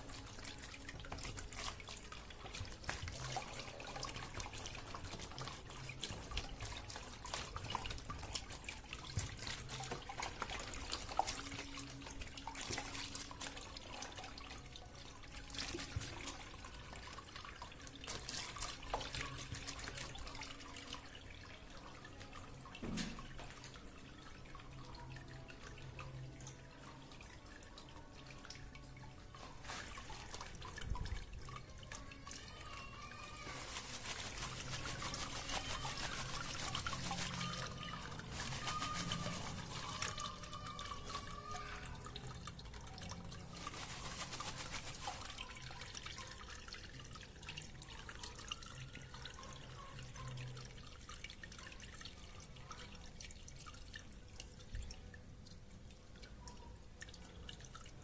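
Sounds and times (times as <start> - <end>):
water pouring: 0.0 - 58.0
water trickling and dripping: 0.0 - 58.0.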